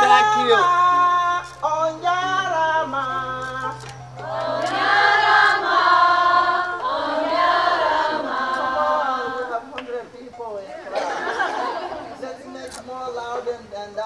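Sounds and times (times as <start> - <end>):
group of voices singing: 0.0 - 10.1
person singing a chant: 0.6 - 9.8.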